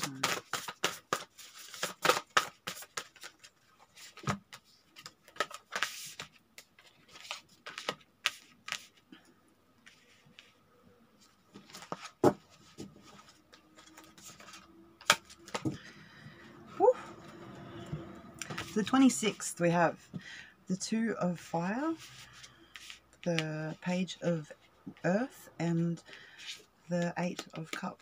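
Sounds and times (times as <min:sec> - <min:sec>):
playing cards shuffled and dealt: 0:00.0 - 0:09.0, 0:11.6 - 0:15.9, 0:26.5 - 0:28.0.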